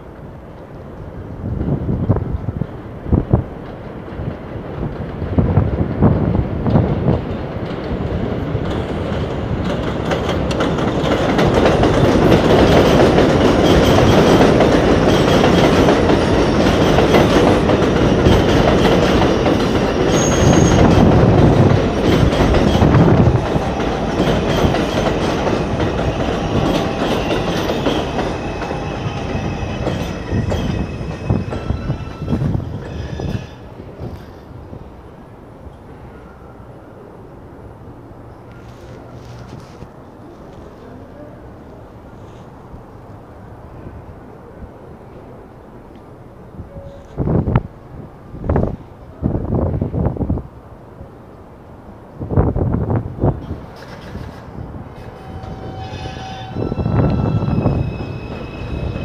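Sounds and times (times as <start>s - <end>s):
train rumbling on elevated track: 0.0s - 59.0s
wind buffeting microphone: 1.0s - 35.0s, 46.5s - 51.1s, 52.0s - 59.0s
high wheel squeal: 20.1s - 21.0s, 26.0s - 34.4s, 55.0s - 59.0s.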